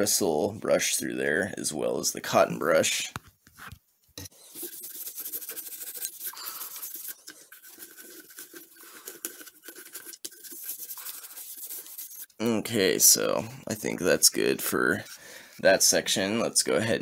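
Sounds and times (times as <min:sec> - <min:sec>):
bristle brush scrubbing metal: 0:04.4 - 0:12.4.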